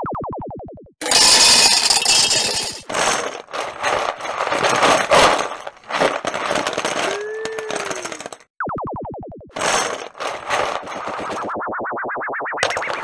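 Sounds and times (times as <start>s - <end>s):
plastic chips pouring and clattering: 1.0s - 8.4s, 9.6s - 11.5s
plastic rings clattering down: 1.0s - 8.5s, 9.6s - 11.5s.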